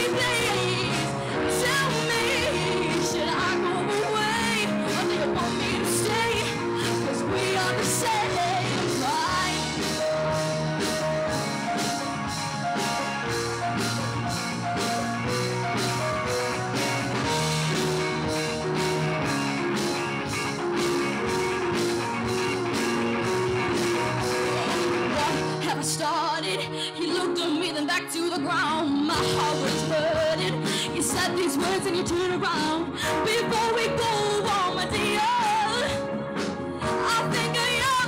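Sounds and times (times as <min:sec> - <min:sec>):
drum kit steady beat: 0:00.0 - 0:25.7
bass guitar: 0:00.0 - 0:26.5, 0:28.5 - 0:38.0
electric guitar: 0:00.0 - 0:38.0
keyboards: 0:00.0 - 0:38.0.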